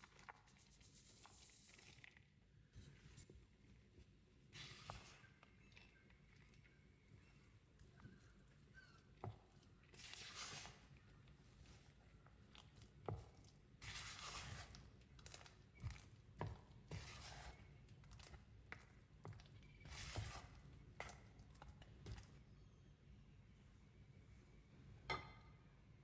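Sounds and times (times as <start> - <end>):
spatula swishing in a bowl: 4.5 - 22.3.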